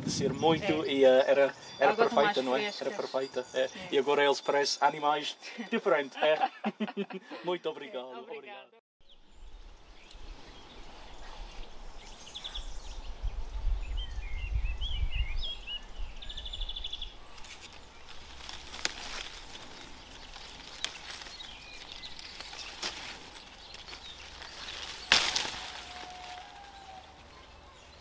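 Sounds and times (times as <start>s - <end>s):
wind rumble on microphone: 0.0s - 0.9s, 9.2s - 17.2s
small birds chirping: 0.0s - 6.4s, 9.0s - 28.0s
tree leaves rustling: 9.1s - 28.0s.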